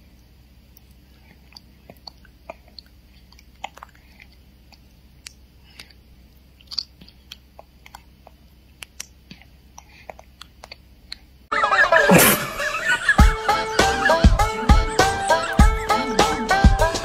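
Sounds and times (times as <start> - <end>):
baby sucking and smacking lips: 0.7 - 11.3.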